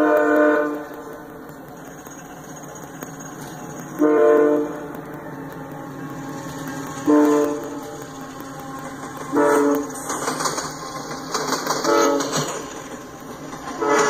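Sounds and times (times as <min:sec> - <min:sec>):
locomotive air horn blast: 0:00.0 - 0:01.1, 0:04.0 - 0:08.0, 0:08.6 - 0:10.1, 0:11.7 - 0:12.7, 0:13.7 - 0:14.0
steady background rumble: 0:00.0 - 0:14.0.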